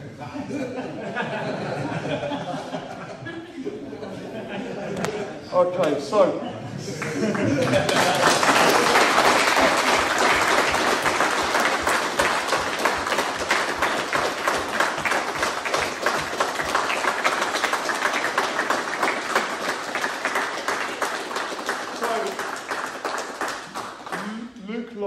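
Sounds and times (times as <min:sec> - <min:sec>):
people applauding: 0:06.9 - 0:24.5.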